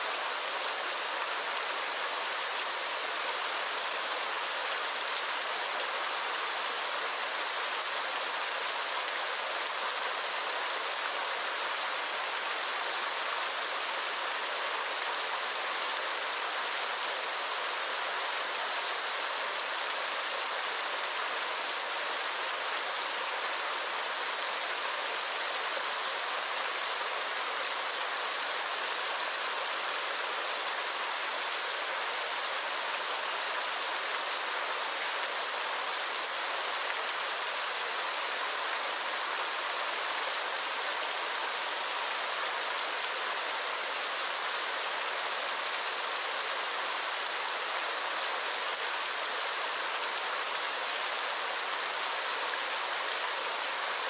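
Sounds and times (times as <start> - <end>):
waterfall pouring into pool: 0.0 - 54.0.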